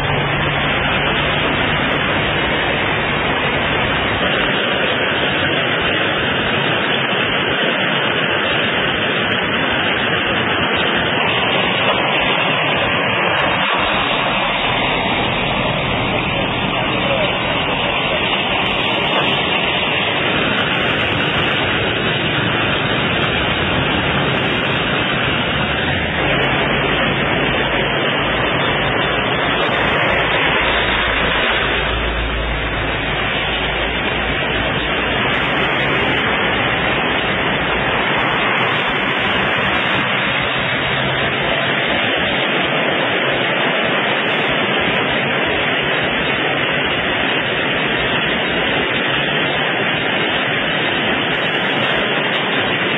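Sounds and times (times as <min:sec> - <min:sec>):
low rumble: 0:00.0 - 0:07.0, 0:08.7 - 0:43.6
loud steady hiss: 0:00.0 - 0:52.9.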